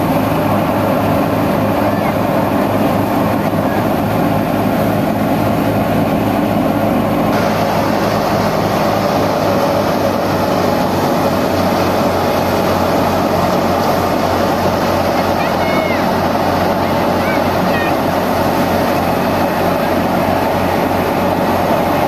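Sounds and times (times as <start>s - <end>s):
diesel tractor engine: 0.0s - 22.0s
thresher running under load: 0.0s - 22.0s.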